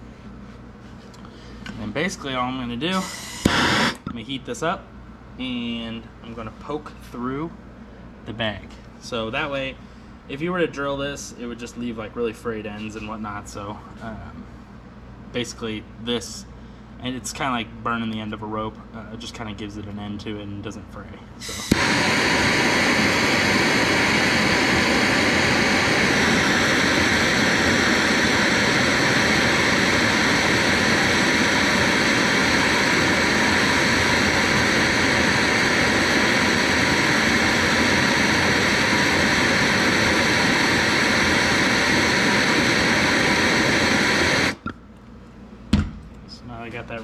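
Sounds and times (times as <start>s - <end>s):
gas torch hissing: 1.9s - 4.1s, 21.4s - 44.6s.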